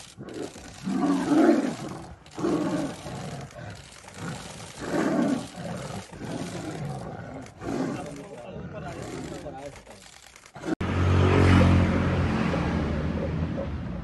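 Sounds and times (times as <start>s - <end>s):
tigers growling: 0.0s - 10.8s
tigers roaring and snarling: 0.0s - 10.8s.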